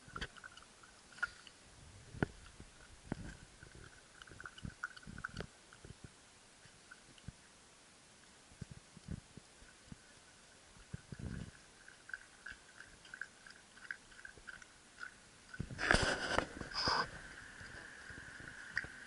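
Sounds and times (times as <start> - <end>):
dog lapping water: 2.2 - 6.0, 10.0 - 17.8.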